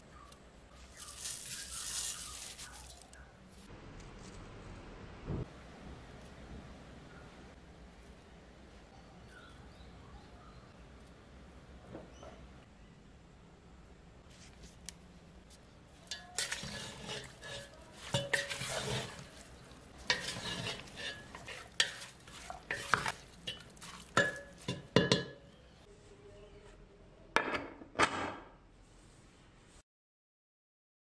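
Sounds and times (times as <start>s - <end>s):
spatula scraping metal pot: 16.0s - 25.5s
spatula knocking metal pot: 16.1s - 19.4s, 20.0s - 25.6s.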